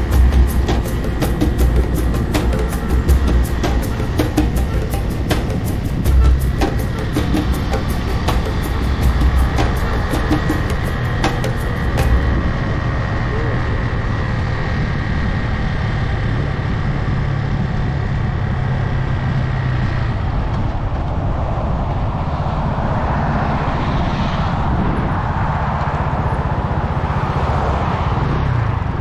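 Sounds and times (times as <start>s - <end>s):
motorcycle engine running: 0.0s - 21.0s
faint whine: 0.0s - 27.2s
traffic: 0.0s - 29.0s
wind rushing: 0.0s - 29.0s.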